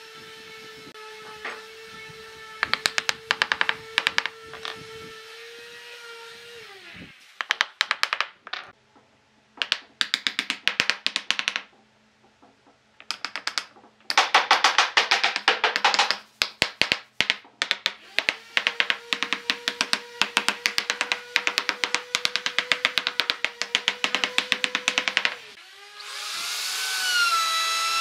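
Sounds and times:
small electric motor humming: 0.0 - 7.1, 18.0 - 28.0
wooden mallet tapping wood: 2.6 - 4.9, 7.4 - 8.7, 9.6 - 11.8, 13.0 - 25.5.

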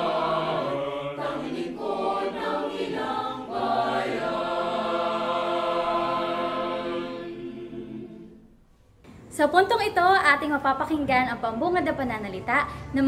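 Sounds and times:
choir singing: 0.0 - 8.6.

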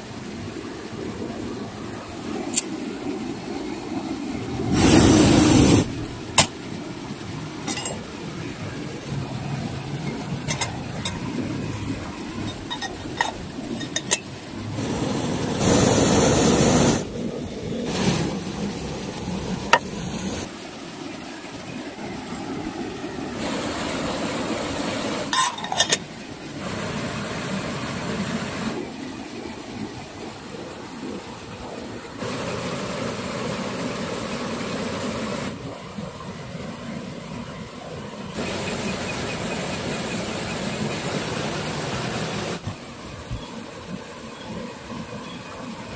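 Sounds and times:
camp stove burner roaring: 4.4 - 20.5, 23.4 - 28.8.

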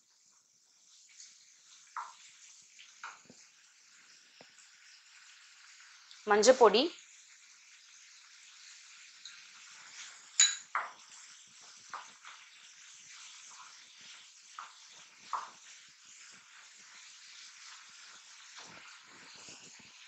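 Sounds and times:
vegetables sizzling: 0.0 - 20.0.

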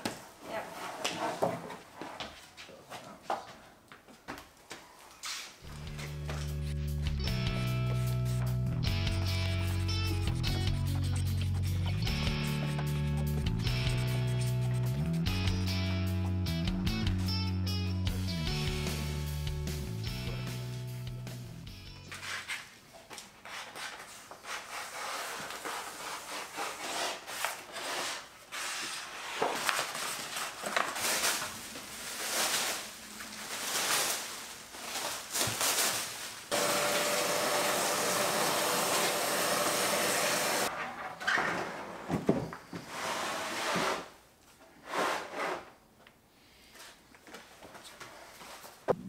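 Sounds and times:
plastic wrap crinkling: 29.5 - 36.5.

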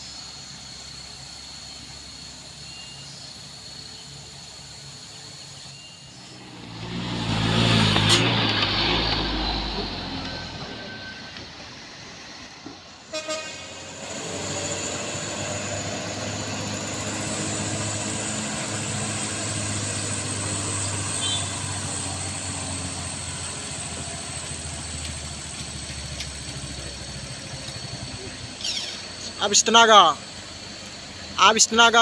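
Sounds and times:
diesel truck engine: 0.0 - 32.0
truck horn toots: 13.1 - 14.4, 21.0 - 21.9.

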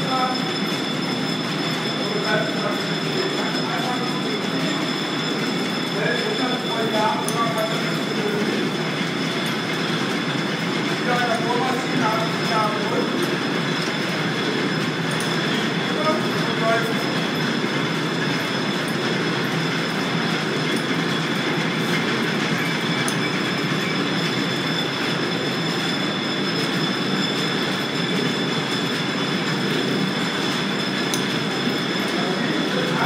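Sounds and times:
thin high whine: 0.0 - 9.7
line shaft rumble and clatter: 0.0 - 33.0.

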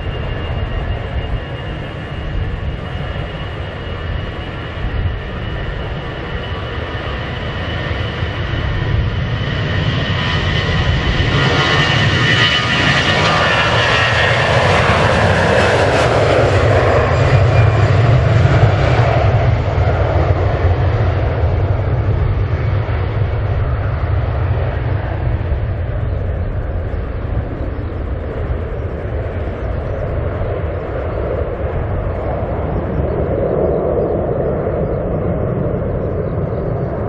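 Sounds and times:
jet engines roaring: 0.0 - 37.0.

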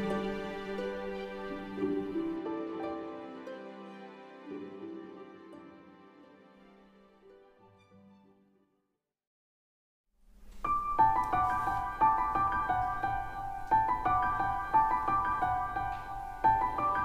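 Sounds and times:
keyboard melody with ringing notes: 10.8 - 17.0.

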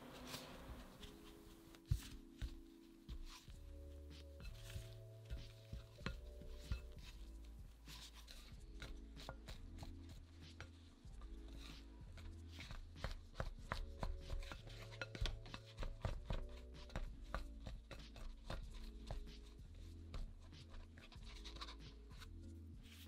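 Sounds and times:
soft background music: 0.0 - 23.0
spatula scraping glass bowl: 3.3 - 10.7, 13.8 - 17.0.

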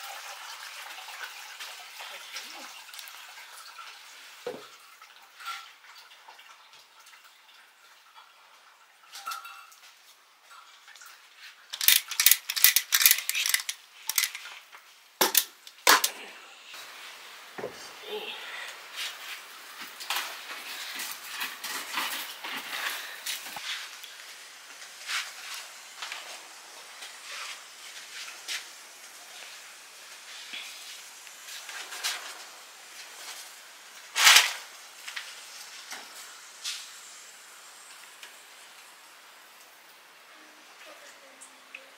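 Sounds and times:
metal pot clinking: 9.1 - 9.9
bamboo basket scraping rustle: 18.9 - 24.0.

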